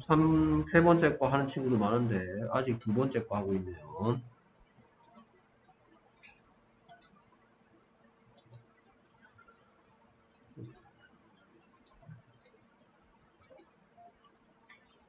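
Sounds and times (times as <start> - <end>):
faint steady hum: 0.0 - 15.0
computer mouse clicks: 5.0 - 5.3, 6.2 - 7.3, 8.3 - 9.4, 10.6 - 11.0, 11.7 - 12.7, 13.4 - 13.8.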